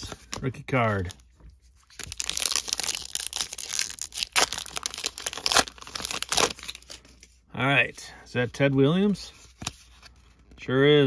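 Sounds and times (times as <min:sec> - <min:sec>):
card pack wrapper tearing: 0:01.9 - 0:07.0.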